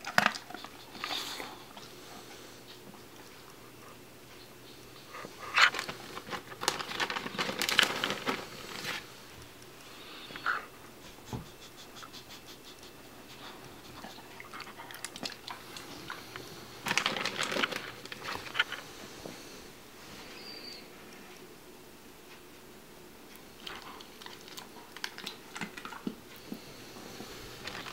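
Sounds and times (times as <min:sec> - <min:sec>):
dog crunching a hard treat: 0:05.5 - 0:09.0, 0:16.8 - 0:18.8, 0:23.6 - 0:26.2.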